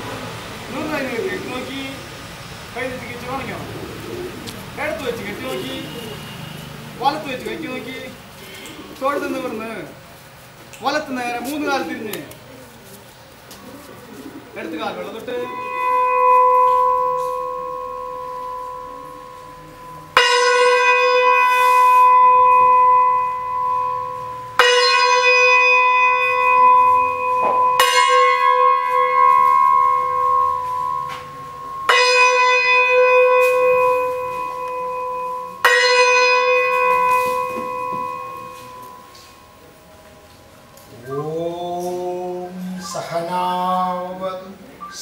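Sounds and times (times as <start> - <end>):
metal bell ringing: 15.3 - 40.8.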